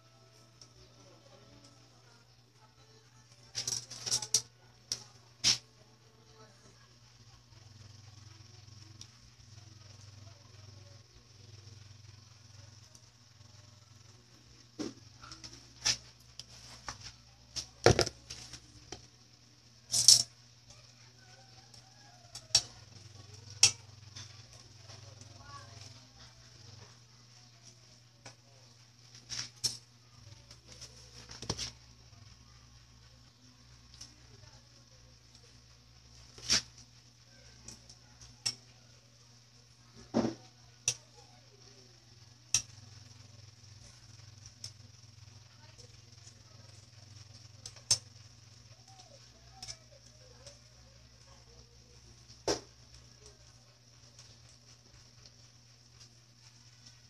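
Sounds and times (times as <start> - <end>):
faint sizzle: 0.0 - 57.0
metal tongs clicking on pan: 22.3 - 22.7.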